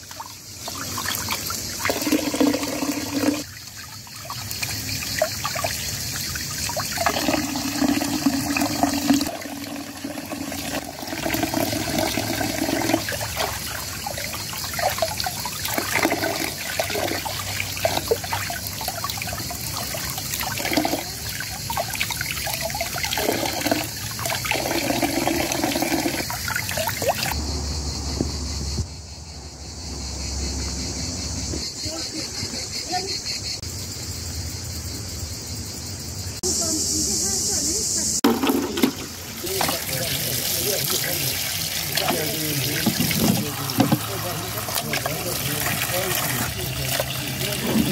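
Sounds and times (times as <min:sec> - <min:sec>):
tap water splashing into basin: 0:00.0 - 0:27.4, 0:38.3 - 0:47.9
vegetables rubbed and rinsed: 0:38.2 - 0:47.9.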